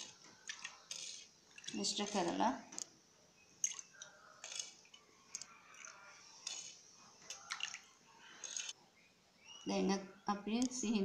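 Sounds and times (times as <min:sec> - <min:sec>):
spoon scraping clay bowl: 0:00.0 - 0:02.4, 0:05.8 - 0:07.5
liquid dripping into bowl: 0:07.2 - 0:08.7.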